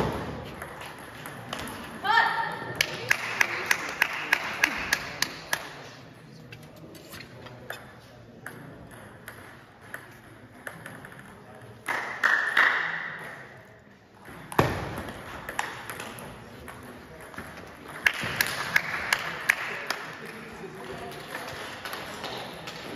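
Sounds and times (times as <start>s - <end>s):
table tennis ball bouncing: 0.0s - 1.9s, 7.7s - 12.6s, 14.2s - 20.0s.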